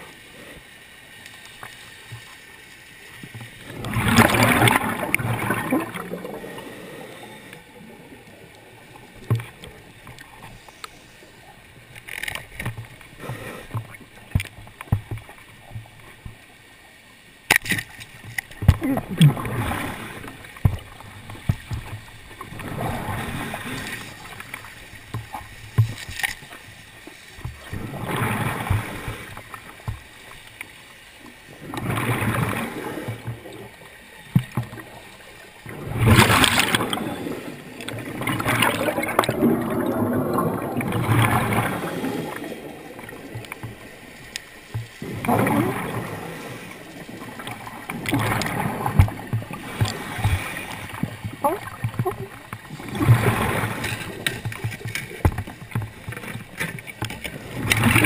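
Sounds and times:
exhaled bubbles underwater: 0:03.2 - 0:10.5, 0:18.6 - 0:26.0, 0:27.4 - 0:30.0, 0:31.5 - 0:58.0
diver breathing through regulator: 0:05.6 - 0:07.8, 0:13.2 - 0:13.9, 0:41.2 - 0:42.7.

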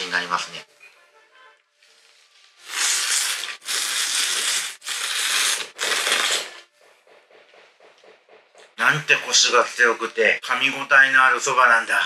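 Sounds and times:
man slurping noodles: 0:02.6 - 0:06.7.

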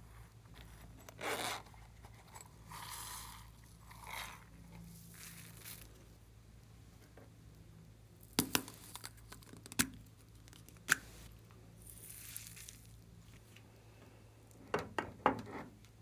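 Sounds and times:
soft hiss: 0:10.1 - 0:14.6.

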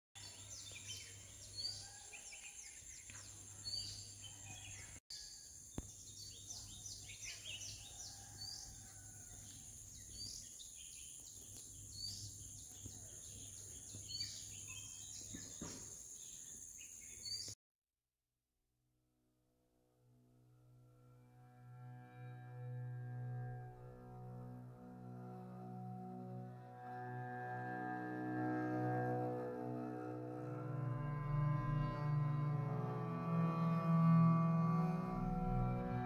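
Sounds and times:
birds chirping: 0:00.2 - 0:17.6.

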